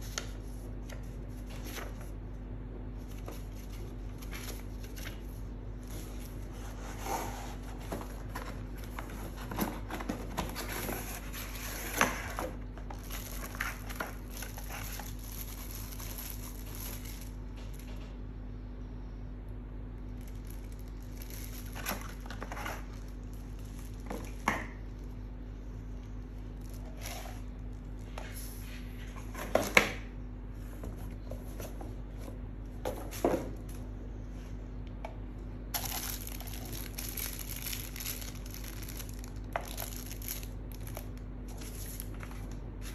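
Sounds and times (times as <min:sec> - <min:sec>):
steady low hum: 0:00.0 - 0:42.9
plastic bags crinkling: 0:07.6 - 0:17.9, 0:20.1 - 0:25.1, 0:35.7 - 0:42.9.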